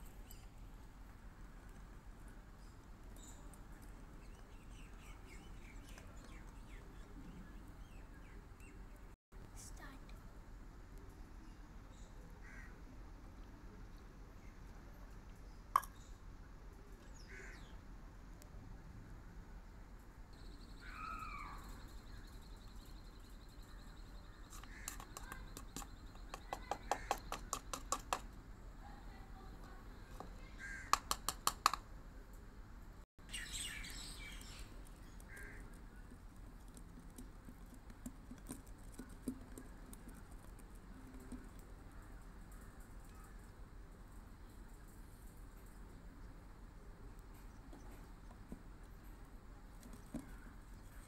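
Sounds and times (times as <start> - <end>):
birds calling: 20.4 - 28.2.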